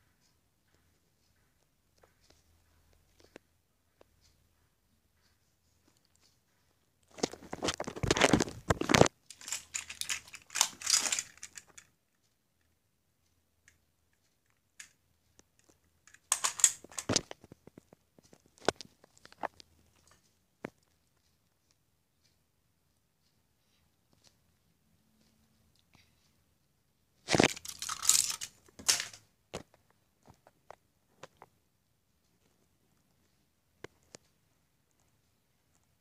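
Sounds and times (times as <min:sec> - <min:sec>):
plastic toys being handled: 0:07.0 - 0:12.7, 0:14.1 - 0:21.7, 0:27.2 - 0:31.5.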